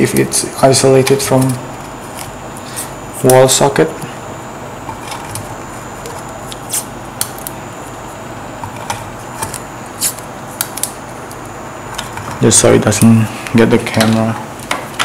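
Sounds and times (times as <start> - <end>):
tape crackles and clicks: 0.0 - 4.1, 4.8 - 15.0
steady background hiss: 0.0 - 15.0.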